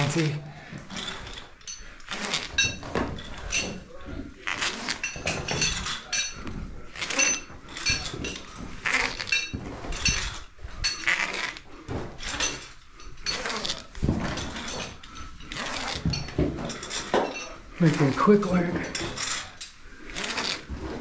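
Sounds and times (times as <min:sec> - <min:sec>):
metal climbing hardware clinking: 0:00.9 - 0:04.0, 0:04.8 - 0:11.3, 0:12.0 - 0:21.0.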